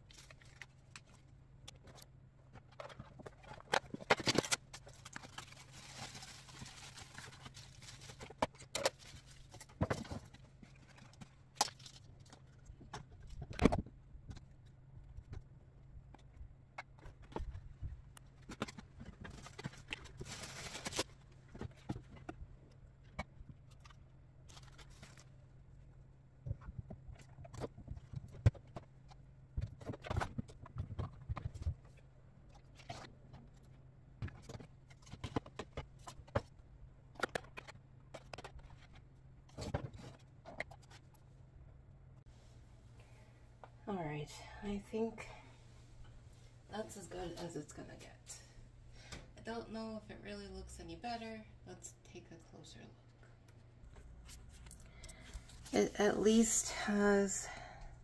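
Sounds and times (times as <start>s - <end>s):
rustling: 0.0s - 13.4s, 16.1s - 25.4s.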